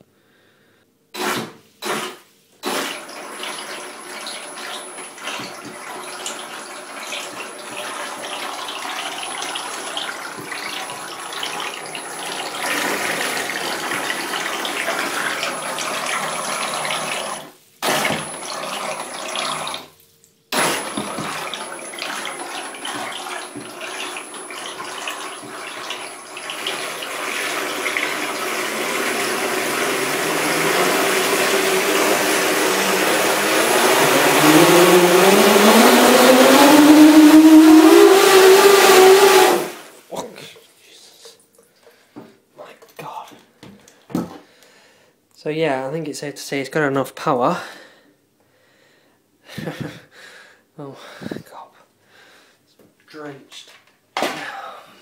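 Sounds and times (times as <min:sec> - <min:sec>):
propellers churning water: 0:20.6 - 0:39.9
high motor whine: 0:32.7 - 0:39.8.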